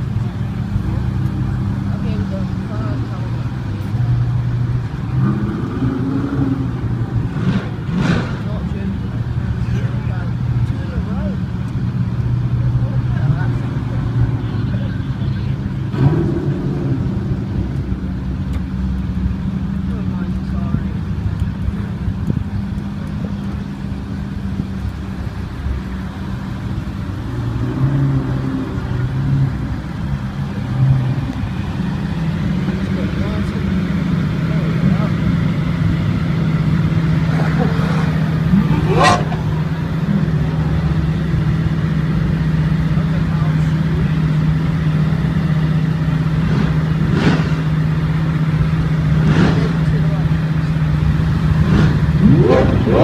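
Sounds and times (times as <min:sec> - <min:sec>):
sports car engines at low revs: 0:00.0 - 0:53.0
engine revving bursts: 0:05.1 - 0:08.6, 0:36.6 - 0:41.2, 0:46.3 - 0:53.0.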